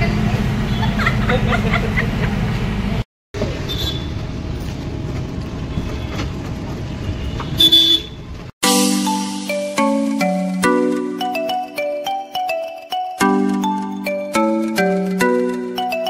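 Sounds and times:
street and vehicle noise: 0.0s - 8.6s
vehicle horn toot: 3.7s - 4.2s, 7.1s - 8.2s
music with bell-like notes: 8.6s - 16.0s.

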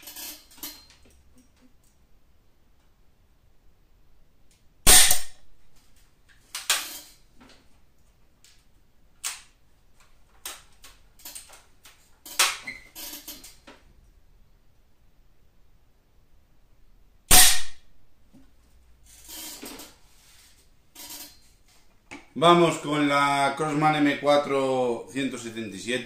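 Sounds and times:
air rifle shot crack: 17.3s - 17.8s.

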